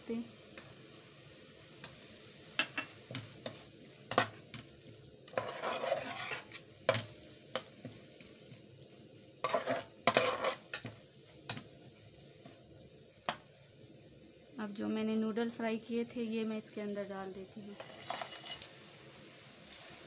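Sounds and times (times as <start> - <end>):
faint sizzle: 0.0 - 20.0
spatula clinking and scraping pan: 2.6 - 4.6, 5.3 - 7.7, 9.4 - 11.7, 17.7 - 18.7.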